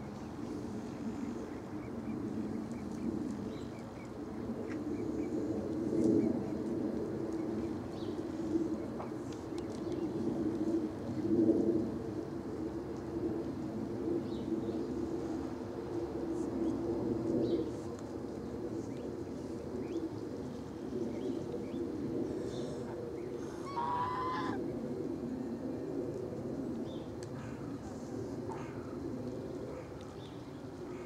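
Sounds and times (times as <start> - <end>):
loud bird call: 23.5 - 24.6.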